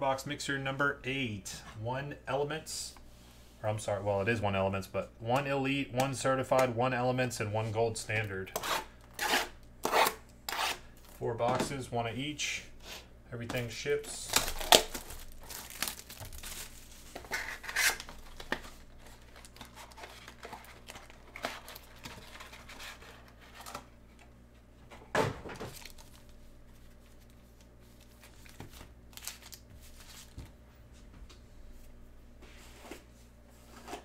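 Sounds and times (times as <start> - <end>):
plastic wrap crinkling and tearing: 14.1 - 23.7, 25.7 - 26.4, 27.0 - 30.4.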